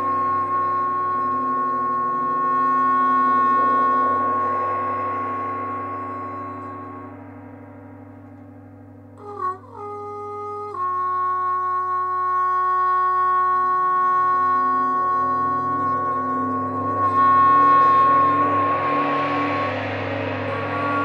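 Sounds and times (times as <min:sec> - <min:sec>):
low drone: 0:00.0 - 0:21.0
trombone sliding and holding notes: 0:09.2 - 0:21.0.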